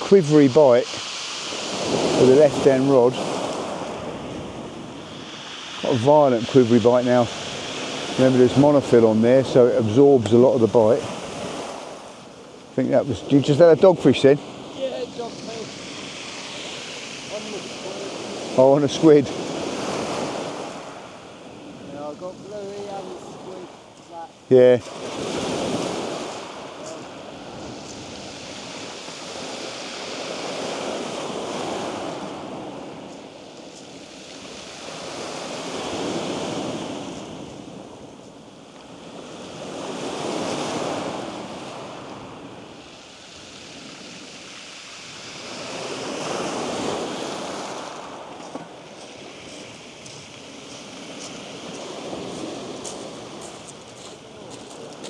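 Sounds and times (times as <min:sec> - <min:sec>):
waves breaking on shingle: 0:45.4 - 0:55.0.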